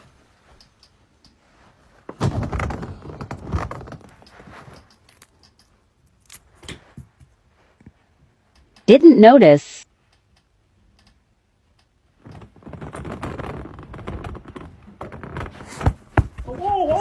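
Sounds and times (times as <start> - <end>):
rustling: 0.0 - 8.5, 12.1 - 17.0.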